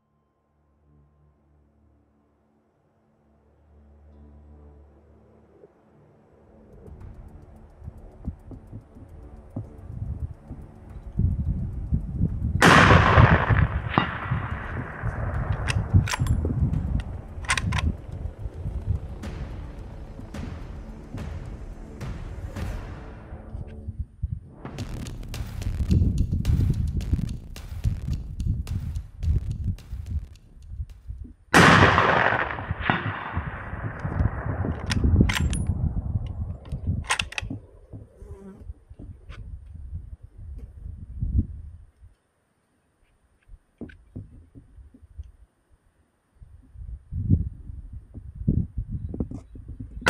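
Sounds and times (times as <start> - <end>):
low wind rumble on microphone: 6.6 - 22.6, 23.5 - 42.1, 46.4 - 50.0
weaker crack: 11.8 - 23.8, 24.5 - 38.0
rifle shot: 12.6 - 17.9, 24.7 - 35.7.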